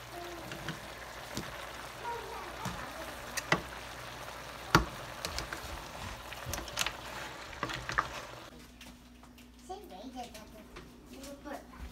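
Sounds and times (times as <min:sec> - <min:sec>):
food sizzling in a pan: 0:00.0 - 0:08.5
spatula and shells knocking on pan: 0:04.7 - 0:05.6.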